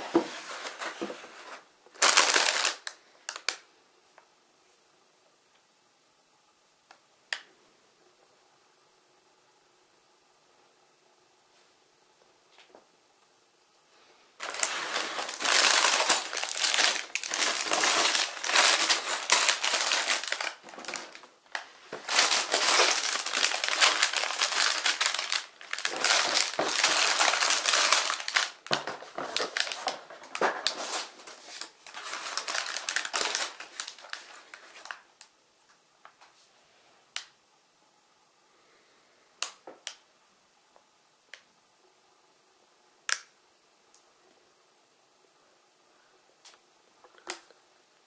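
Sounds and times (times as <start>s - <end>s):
plastic bags crinkling: 0.5s - 3.6s, 14.4s - 35.1s.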